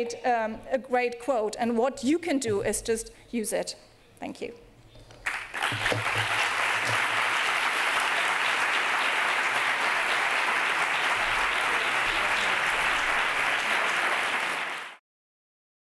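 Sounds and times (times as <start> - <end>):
large audience applauding: 5.2 - 15.0.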